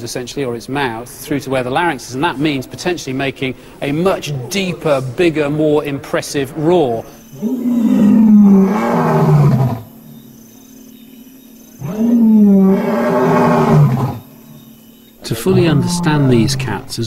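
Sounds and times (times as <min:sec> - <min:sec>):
lion roaring: 0:04.0 - 0:05.0, 0:07.3 - 0:10.0, 0:11.8 - 0:14.3, 0:15.5 - 0:16.8.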